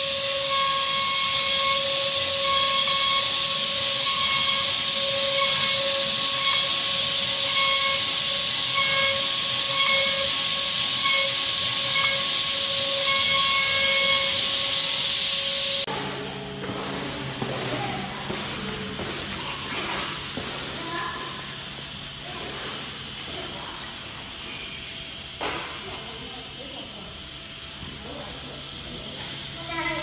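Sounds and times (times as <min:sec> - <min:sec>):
hiss of wood cutting: 0:00.0 - 0:15.9, 0:17.0 - 0:30.0
router spindle whine: 0:00.0 - 0:17.4.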